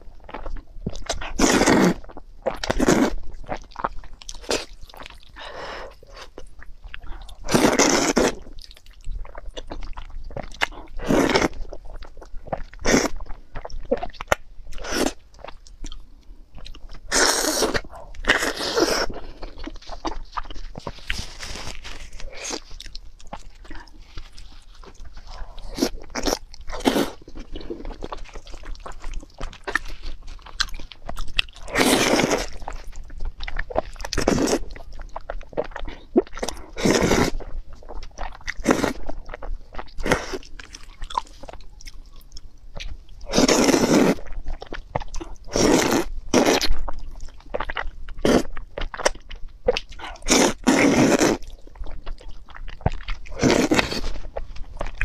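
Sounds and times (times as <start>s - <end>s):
wet chewing: 0.0s - 55.0s
noodles being slurped: 50.2s - 51.5s, 53.3s - 55.0s.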